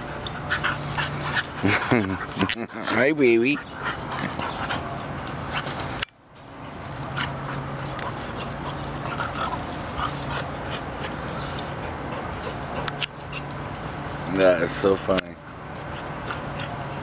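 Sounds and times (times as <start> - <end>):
dogs scuffling: 0.0 - 17.0.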